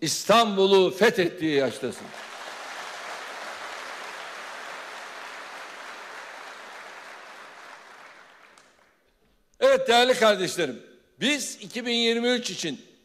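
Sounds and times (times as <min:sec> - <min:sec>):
crowd applauding: 0:02.0 - 0:09.0.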